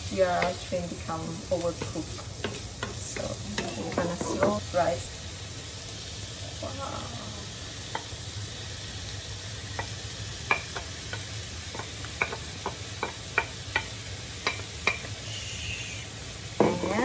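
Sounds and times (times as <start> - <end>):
food sizzling in a frying pan: 0.0 - 17.0
spatula knocking on plate and pan: 1.8 - 4.6, 9.8 - 15.1, 16.6 - 17.0.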